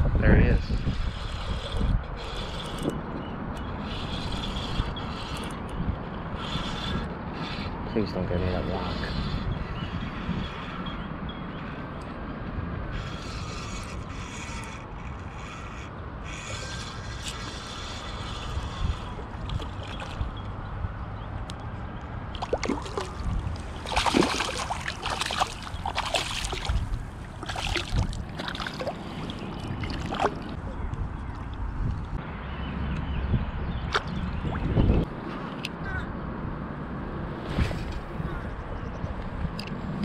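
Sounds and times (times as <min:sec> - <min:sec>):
water and wind rumble: 0:00.0 - 0:40.0
spinning reel cranking: 0:12.9 - 0:19.2
fish splashing at surface: 0:22.4 - 0:26.8.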